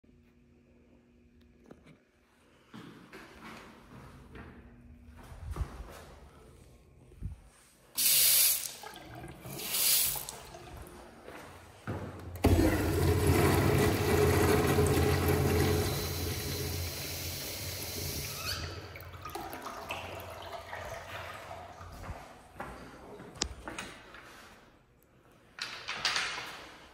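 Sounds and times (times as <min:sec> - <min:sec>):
sink tap running: 0:08.0 - 0:10.9, 0:12.4 - 0:21.0
toilet flush rush of water: 0:08.0 - 0:11.4, 0:12.4 - 0:22.0.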